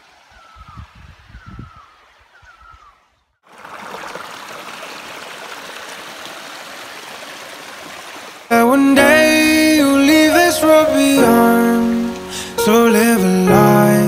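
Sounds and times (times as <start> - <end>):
stream running over rocks: 0.0 - 0.6, 3.4 - 8.5
bird chirping: 0.3 - 3.4.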